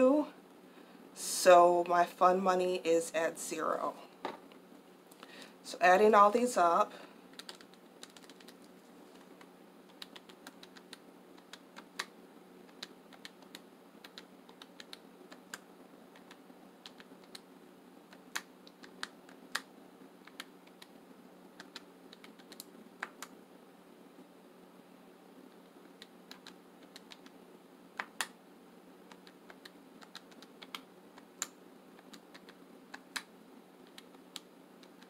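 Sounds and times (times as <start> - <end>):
calculator keys clicking: 7.4 - 8.6, 29.1 - 30.8.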